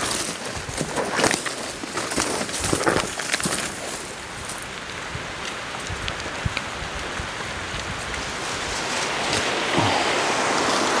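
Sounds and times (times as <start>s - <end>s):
creek rushing over rocks: 5.6s - 11.0s.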